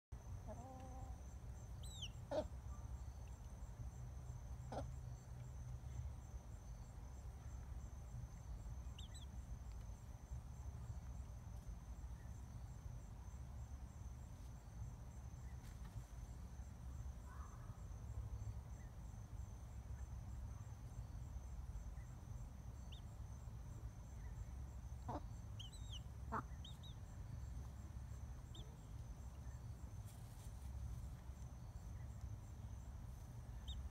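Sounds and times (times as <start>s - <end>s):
crickets chirring: 0.1s - 33.9s
chick peeping: 0.4s - 1.2s, 1.8s - 2.6s, 8.9s - 9.8s, 25.0s - 27.0s, 28.4s - 29.5s, 33.6s - 33.9s.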